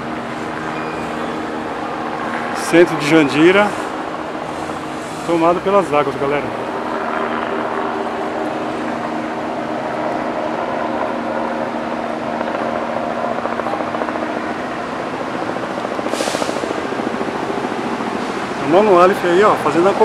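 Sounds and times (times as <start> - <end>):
traffic engine hum: 0.0 - 20.0
short hiss: 16.2 - 16.6.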